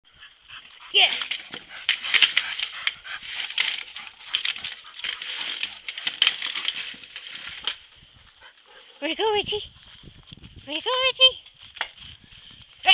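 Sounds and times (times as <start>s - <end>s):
plastic pipe dragged over dirt: 0.2s - 8.5s.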